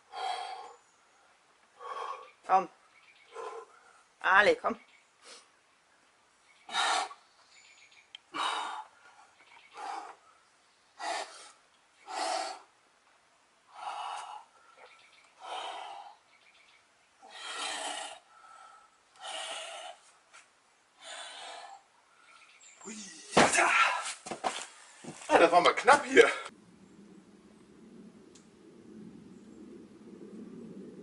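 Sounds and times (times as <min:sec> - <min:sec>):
person breathing hard under strain: 0:17.2 - 0:20.1.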